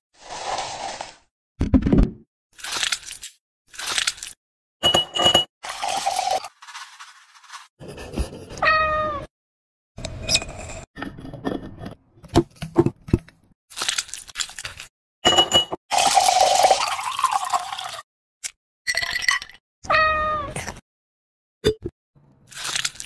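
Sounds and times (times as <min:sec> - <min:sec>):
cat meow: 0:08.6 - 0:09.3, 0:19.9 - 0:20.6
liquid poured over ice: 0:15.9 - 0:18.0, 0:22.5 - 0:23.0.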